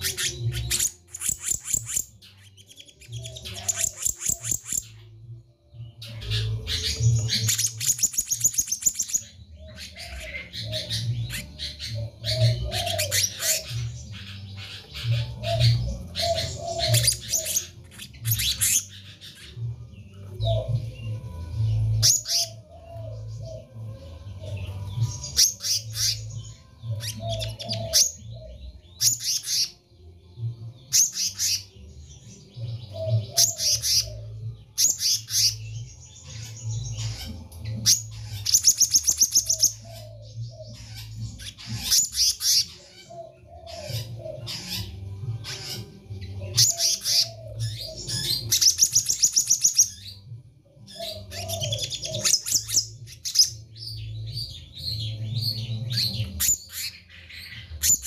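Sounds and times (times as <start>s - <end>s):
bird high rapid chattering: 0.0s - 5.0s.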